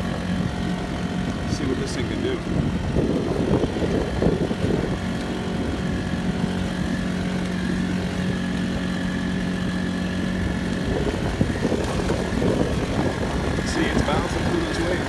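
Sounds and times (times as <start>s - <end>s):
boat engine running: 0.0s - 15.0s
water splashing against pontoon: 7.3s - 15.0s.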